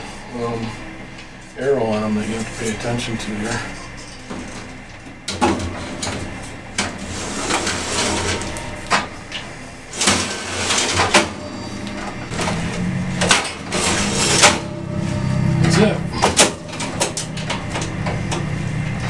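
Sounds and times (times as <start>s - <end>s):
metal-on-metal scraping: 7.0s - 19.0s.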